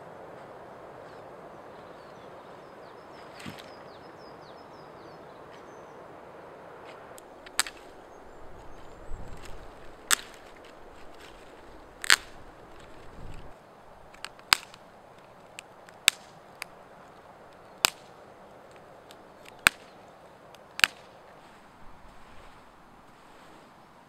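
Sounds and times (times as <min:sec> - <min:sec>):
twigs snapping: 0:03.2 - 0:03.8, 0:06.9 - 0:22.7.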